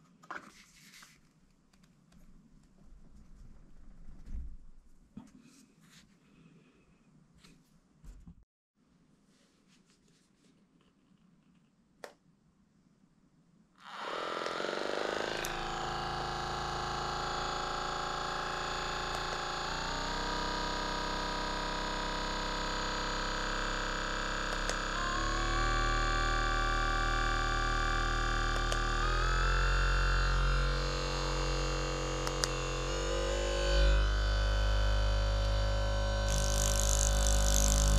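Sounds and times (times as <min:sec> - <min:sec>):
massage gun buzzing: 0:13.8 - 0:37.9.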